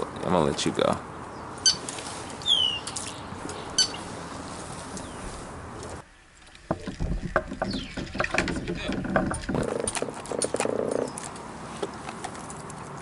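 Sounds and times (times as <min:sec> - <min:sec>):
fishing gear knocking and rustling: 0:05.8 - 0:13.0.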